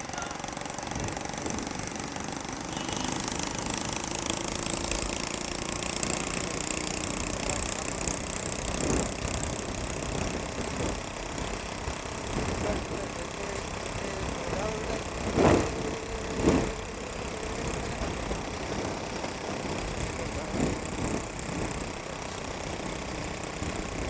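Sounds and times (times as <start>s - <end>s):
rushing noise from riding: 0.0s - 24.0s
vehicle engine running roughly: 0.0s - 24.0s.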